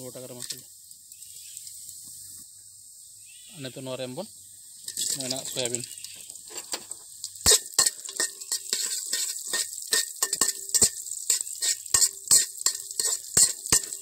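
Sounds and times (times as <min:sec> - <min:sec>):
oil sizzling: 0:00.0 - 0:03.0, 0:04.4 - 0:14.0
spoon scraping metal pot: 0:04.8 - 0:14.0.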